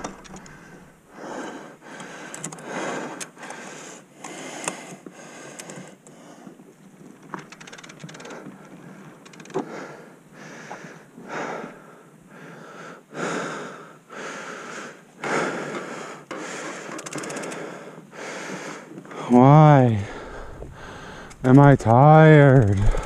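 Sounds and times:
bike chain clicking: 0:00.0 - 0:00.9, 0:07.2 - 0:08.5, 0:09.2 - 0:09.6, 0:16.9 - 0:17.7
person breathing hard: 0:00.0 - 0:06.6, 0:08.1 - 0:21.5, 0:22.8 - 0:23.0.

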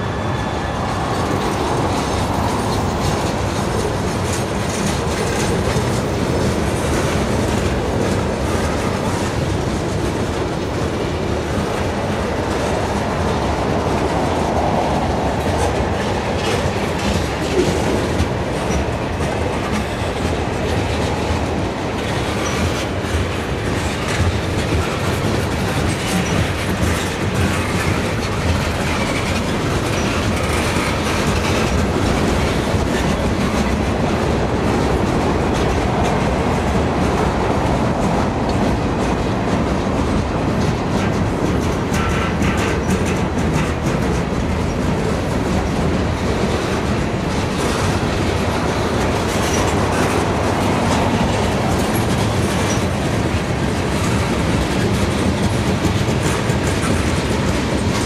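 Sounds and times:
freight train wheels rumbling: 0:00.0 - 0:58.0
train cars clattering on track: 0:00.0 - 0:58.0.

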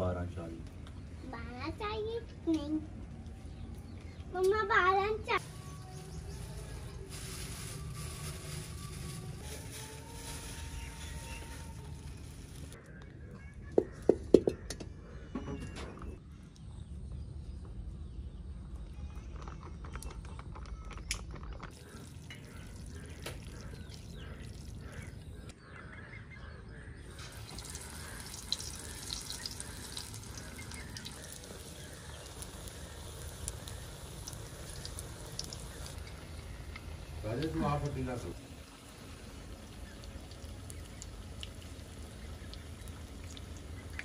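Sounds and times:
deep-frying sizzle: 0:27.1 - 0:44.0
oil pouring: 0:27.2 - 0:44.0.

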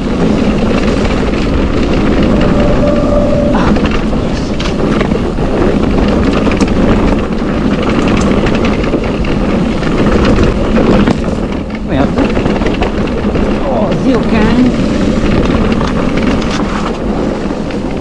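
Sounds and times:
bike rattling on rocky trail: 0:00.0 - 0:18.0
wind buffeting microphone: 0:00.0 - 0:18.0
sharp knocks of bike jolting: 0:04.0 - 0:18.0.

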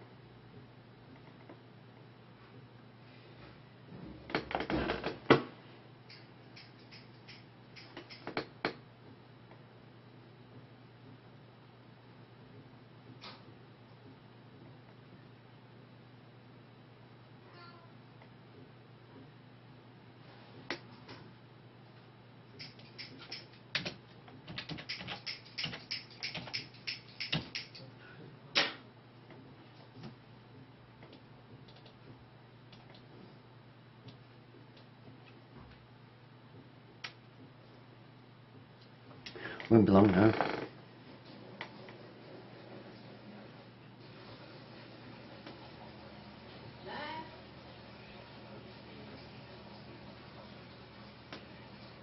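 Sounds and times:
faint low hum: 0:00.0 - 0:52.0
light clicks and taps: 0:06.1 - 0:08.8.

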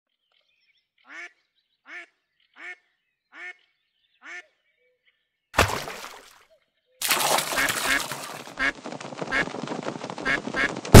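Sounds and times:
duck quacking: 0:01.0 - 0:04.6.

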